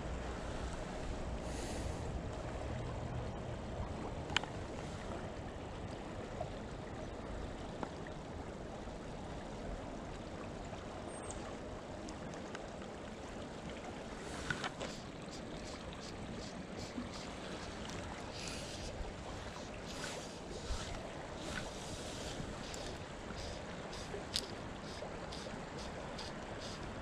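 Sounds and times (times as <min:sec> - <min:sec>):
creek water rushing: 0:00.0 - 0:27.0.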